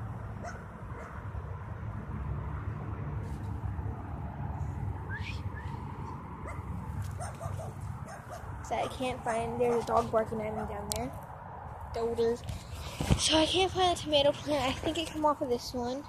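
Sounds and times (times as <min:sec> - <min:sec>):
dog barking and yipping: 0:00.4 - 0:01.2, 0:06.4 - 0:09.0, 0:09.6 - 0:10.8.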